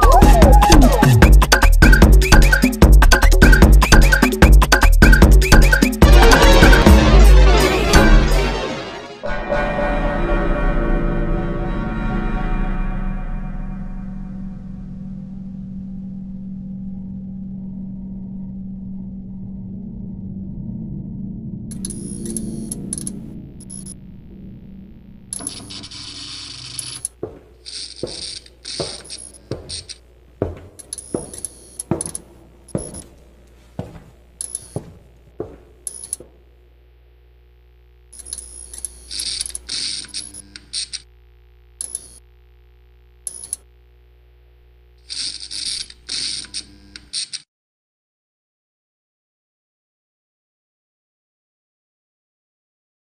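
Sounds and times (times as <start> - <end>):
low steady drone: 9.2 - 26.8.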